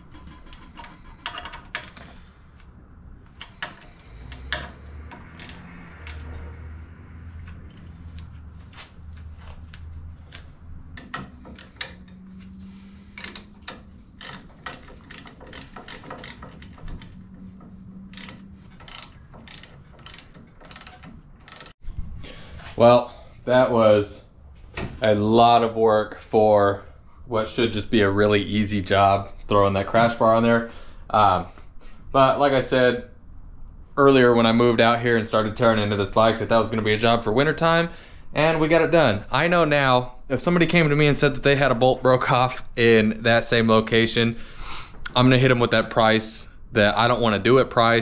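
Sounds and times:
hand ratchet clicking: 3.3s - 6.4s, 9.6s - 21.8s.

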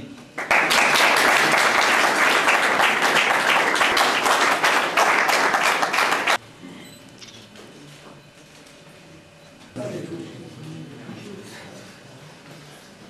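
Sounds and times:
audience applauding: 0.4s - 6.4s.

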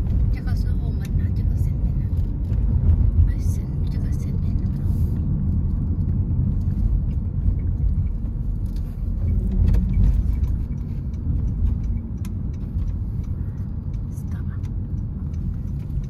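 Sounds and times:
car road and engine noise: 0.0s - 16.0s
faint ticks: 8.7s - 16.0s.

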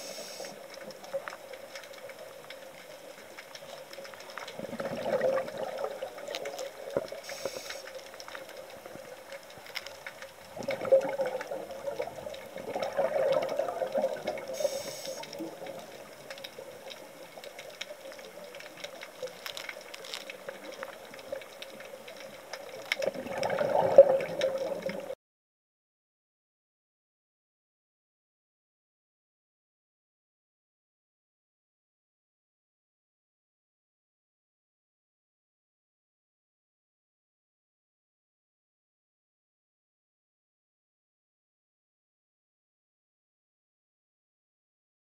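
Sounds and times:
faint clicks: 0.0s - 25.2s
underwater bubbles: 0.0s - 25.2s.

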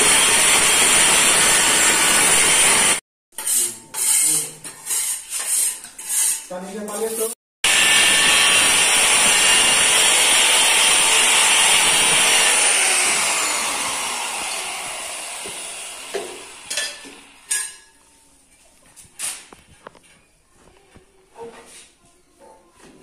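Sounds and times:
trowel scraping on tile: 3.4s - 7.4s.

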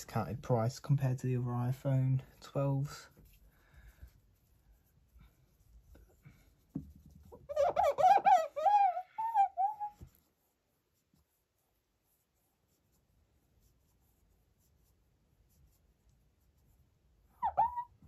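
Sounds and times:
animal whining calls: 7.5s - 10.0s, 17.4s - 18.0s.

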